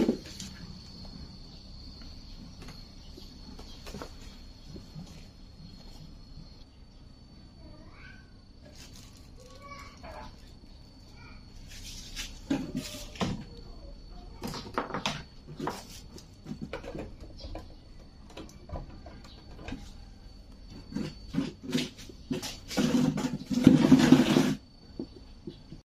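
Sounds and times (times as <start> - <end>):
objects knocking and clicking: 14.4 - 20.1.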